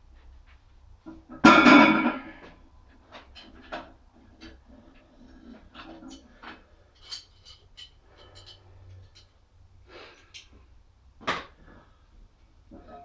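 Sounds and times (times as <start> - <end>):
loud metal clank: 1.4 - 2.4.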